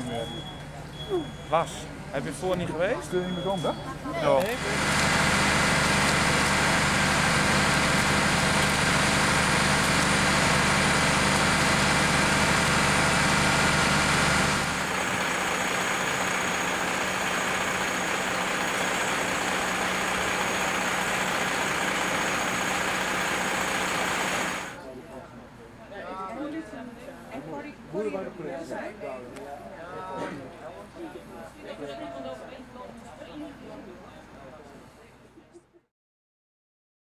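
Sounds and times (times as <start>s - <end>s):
mechanical hum with high whine: 0.0s - 19.8s
fire engine engine rumbling: 3.0s - 24.8s.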